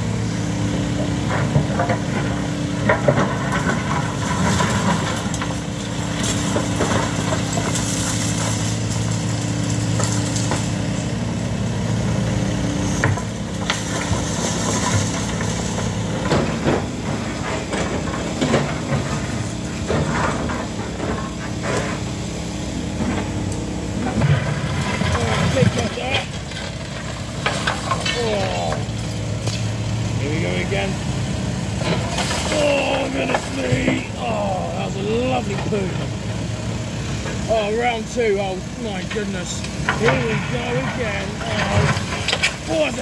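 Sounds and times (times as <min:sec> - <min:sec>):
excavator diesel engine running: 0:00.0 - 0:43.0
concrete chunks clattering: 0:01.1 - 0:11.0, 0:13.0 - 0:22.0, 0:24.0 - 0:30.9, 0:31.8 - 0:36.2, 0:37.3 - 0:43.0.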